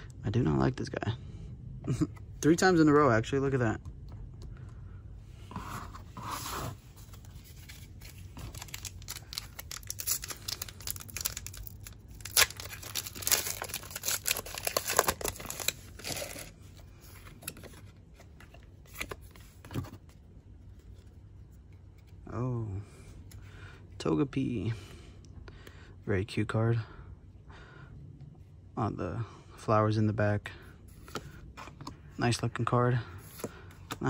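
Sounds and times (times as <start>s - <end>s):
wrapper and cards rustling: 5.6s - 22.2s
foil wrapper tearing: 8.5s - 16.5s.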